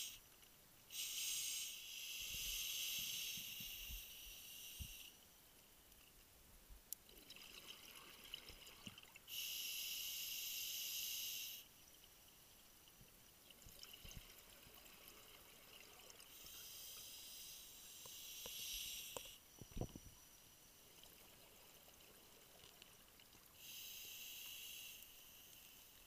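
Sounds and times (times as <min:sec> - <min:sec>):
regulator inhale hiss: 0:00.9 - 0:05.2, 0:09.3 - 0:11.7, 0:16.3 - 0:20.1, 0:23.6 - 0:26.0.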